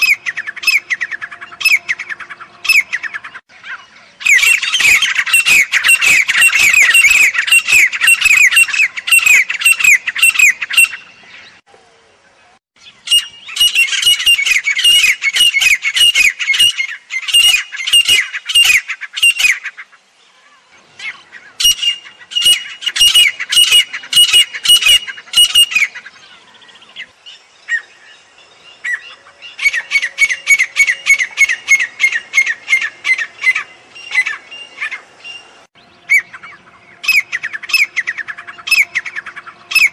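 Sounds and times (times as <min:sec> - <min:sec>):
francolin calling shrill notes: 0:04.2 - 0:11.2, 0:13.0 - 0:19.6, 0:21.6 - 0:26.0.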